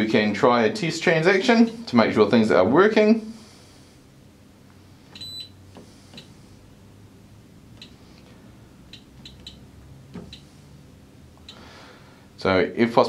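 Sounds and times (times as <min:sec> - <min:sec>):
short high key-press beeps: 0:05.2 - 0:05.6, 0:08.9 - 0:09.6.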